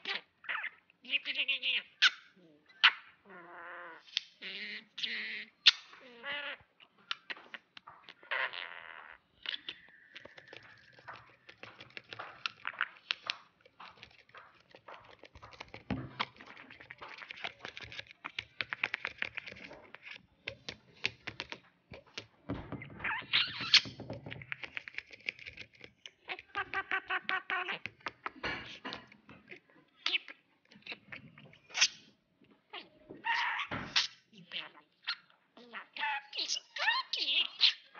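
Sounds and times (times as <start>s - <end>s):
budgie chirping and warbling: 0.0s - 21.6s, 22.6s - 37.9s
bird pecking at laptop keys: 10.1s - 22.3s, 23.6s - 26.1s.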